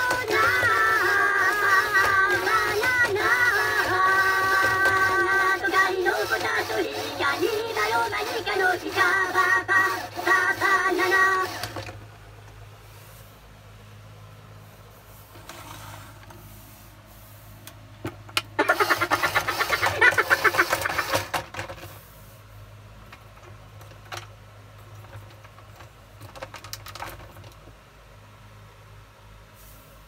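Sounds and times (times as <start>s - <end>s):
toy motor and gears rattling: 0.0s - 12.0s, 18.6s - 22.1s, 23.0s - 27.7s.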